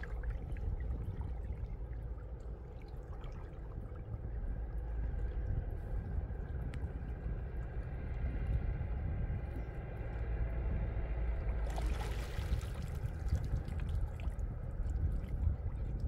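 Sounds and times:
steady low rumble: 0:00.0 - 0:16.0
water splashing: 0:11.4 - 0:16.0.

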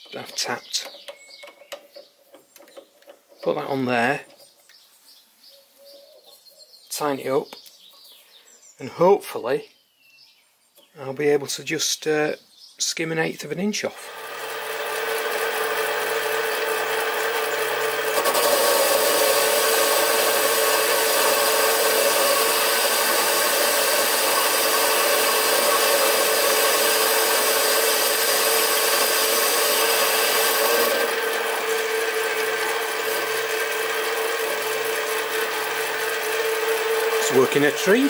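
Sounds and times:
lathe motor whine: 0:14.0 - 0:38.0
lathe tool cutting hiss: 0:14.0 - 0:38.0.

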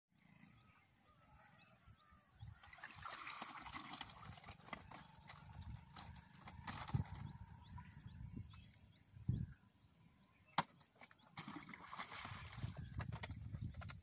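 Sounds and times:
water trickling and dripping: 0:00.2 - 0:14.0
gear clicks and knocks in boat: 0:04.0 - 0:07.6.

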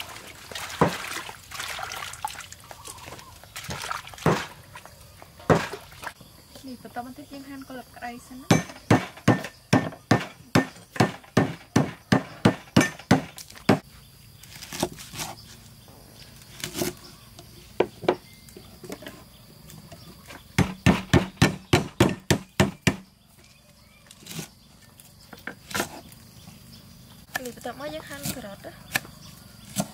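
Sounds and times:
cleavers chopping on wooden blocks: 0:04.2 - 0:04.6, 0:05.4 - 0:05.9, 0:08.5 - 0:13.8, 0:20.5 - 0:23.1, 0:28.1 - 0:29.9.

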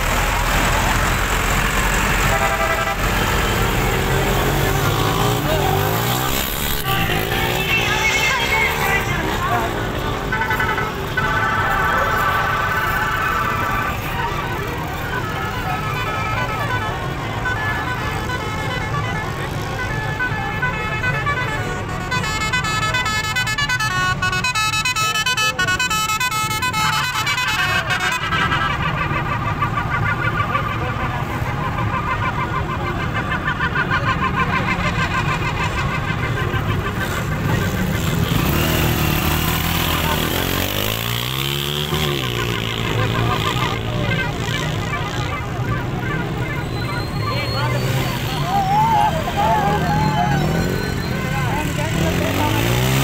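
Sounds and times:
small motorcycle engine revving: 0:03.0 - 0:09.4, 0:36.8 - 0:46.4, 0:49.4 - 0:53.0.

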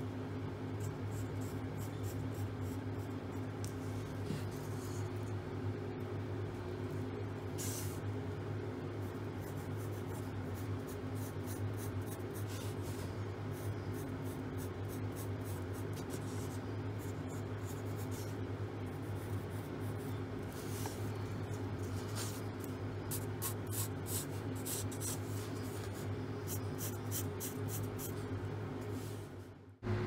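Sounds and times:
pencil scratching on paper: 0:09.0 - 0:21.0, 0:21.8 - 0:28.2.

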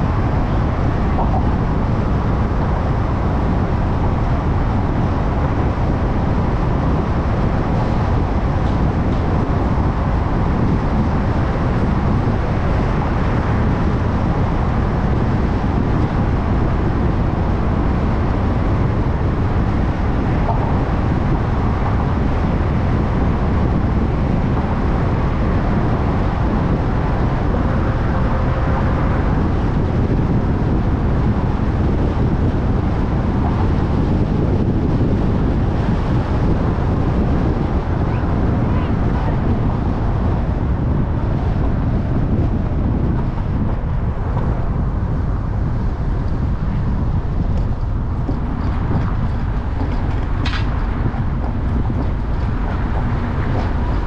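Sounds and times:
car tyres and engine rumbling: 0:00.0 - 0:54.0.

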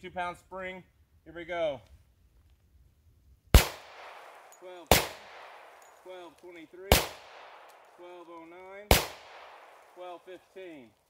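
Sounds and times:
pistol shots with echo: 0:03.6 - 0:06.2, 0:06.8 - 0:08.2, 0:08.8 - 0:10.2.

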